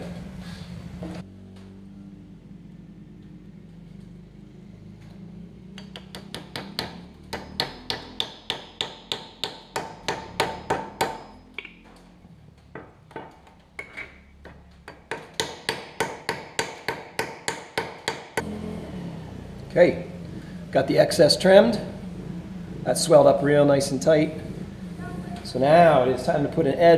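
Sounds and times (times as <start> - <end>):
hammer tapping wooden wedge: 5.8 - 11.8, 12.8 - 18.4.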